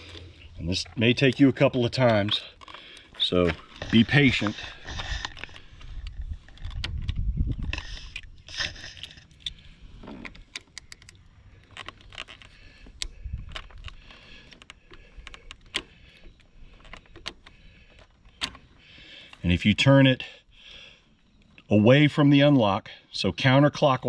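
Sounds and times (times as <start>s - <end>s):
key turning in ignition switch: 10.2s - 18.7s.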